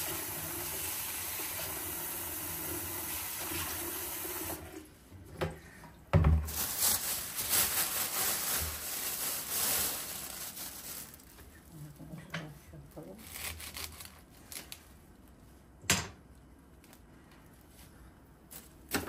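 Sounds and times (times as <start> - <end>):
plastic bag crinkling: 6.4 - 12.1, 12.9 - 15.4.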